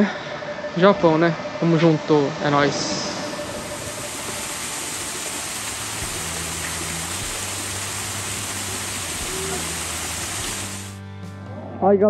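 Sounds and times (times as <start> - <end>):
waterfall splashing into pool: 3.7 - 11.0.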